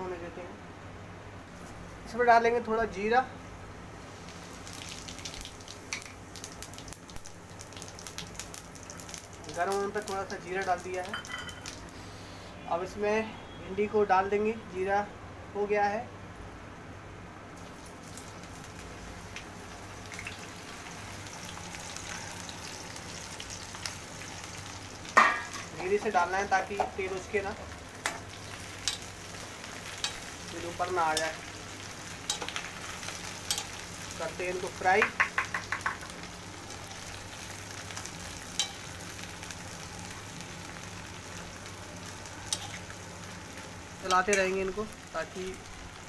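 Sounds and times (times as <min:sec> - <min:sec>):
okra sizzling in hot oil: 0:03.7 - 0:12.7, 0:17.5 - 0:46.0
spoon tapping pan: 0:35.0 - 0:36.1.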